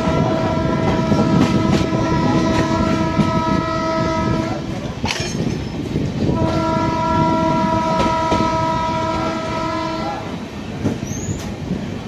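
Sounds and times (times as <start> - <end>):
train horn blast: 0.0 - 4.7, 6.3 - 10.4
clickety-clack of coaches: 0.0 - 9.5, 10.3 - 12.0
train rumbling on track: 0.0 - 12.0.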